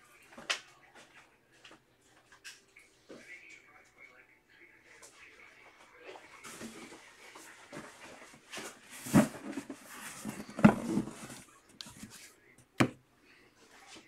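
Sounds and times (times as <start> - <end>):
cardboard boxes rustling: 6.4 - 12.3.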